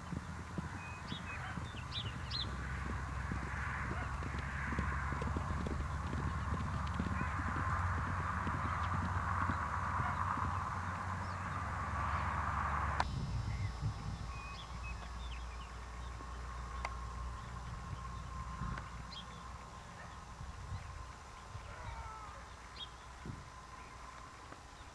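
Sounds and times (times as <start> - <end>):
horses galloping on dirt: 0.0 - 13.1, 13.8 - 24.9
faint high chirps: 13.0 - 18.2.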